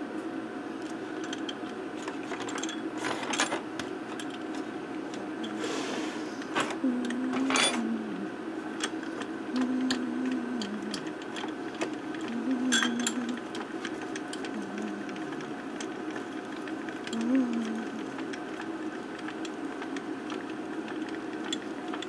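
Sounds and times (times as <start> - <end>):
low whirring tone: 0.0 - 22.0
table slide ticking and clicking: 8.8 - 22.0.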